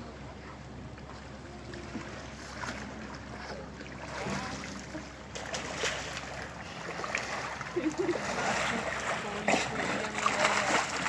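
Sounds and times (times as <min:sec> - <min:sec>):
bear cub splashing in water: 0:02.5 - 0:11.0.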